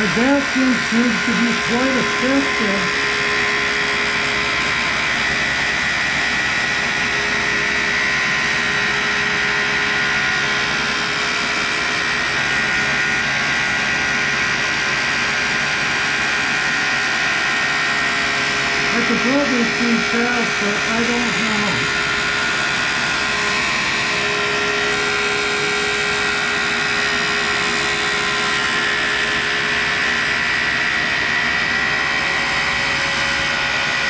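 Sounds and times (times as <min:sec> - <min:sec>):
grinder whining: 0:00.0 - 0:10.8, 0:18.3 - 0:28.9.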